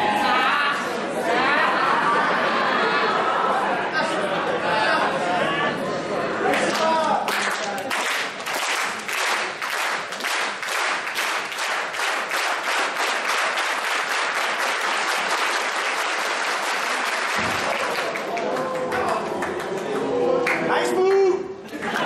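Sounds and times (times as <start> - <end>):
crowd applauding rhythmically: 6.4 - 22.0.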